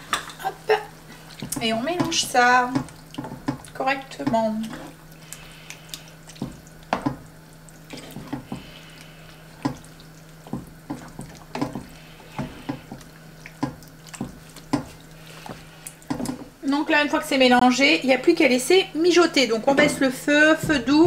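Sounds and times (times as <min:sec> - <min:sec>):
steady low hum: 0:00.0 - 0:21.0
wet squelching of thick sauce: 0:01.0 - 0:16.5
spatula clacking against pan: 0:12.4 - 0:15.0.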